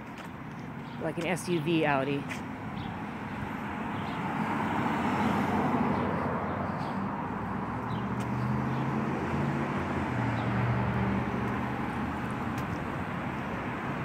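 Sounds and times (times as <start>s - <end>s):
cars passing: 0.0s - 14.0s.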